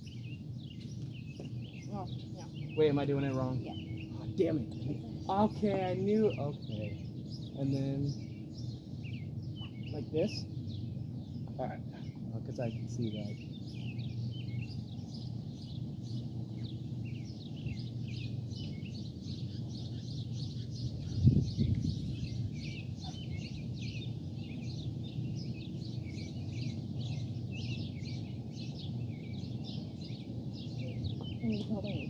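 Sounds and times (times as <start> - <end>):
birds chirping: 0.0 - 32.0
steady low rumble: 0.0 - 32.0.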